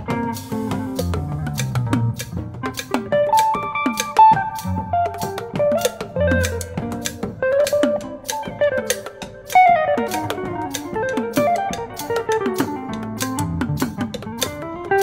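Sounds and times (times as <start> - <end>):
drum kit: 0.0 - 15.0
jazz guitar playing quick notes: 0.0 - 15.0.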